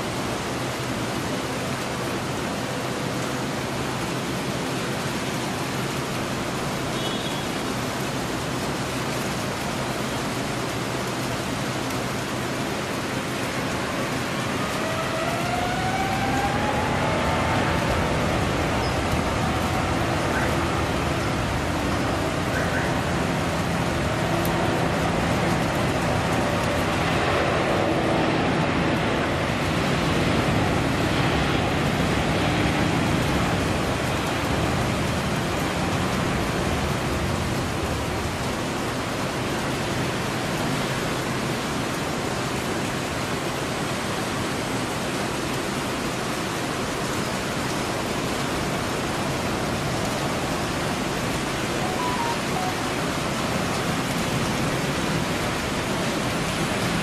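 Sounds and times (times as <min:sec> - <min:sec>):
jet plane taking off: 0:14.4 - 0:33.8.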